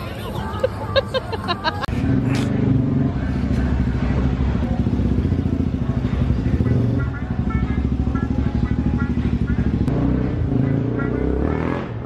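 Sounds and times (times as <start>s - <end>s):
motorcycle engine idling: 2.0s - 9.9s.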